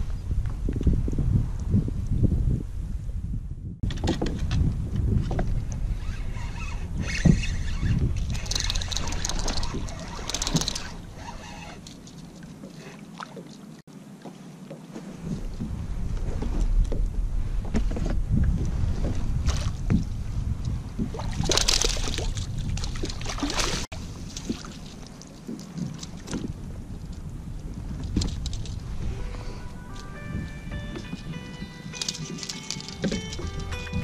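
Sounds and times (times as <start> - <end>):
wind rumbling on microphone: 0.0 - 12.7, 14.9 - 34.0
water splashing around a kayak: 20.8 - 29.7.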